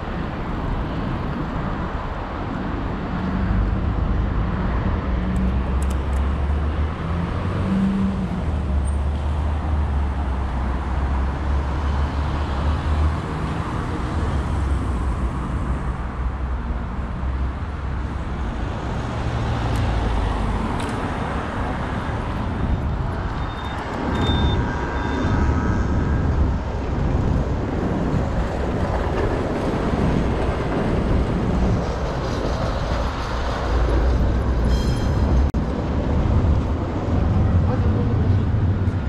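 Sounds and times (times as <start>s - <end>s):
street traffic: 0.0s - 39.0s
high ringing tone: 23.4s - 25.6s
short high beeps: 23.5s - 25.2s.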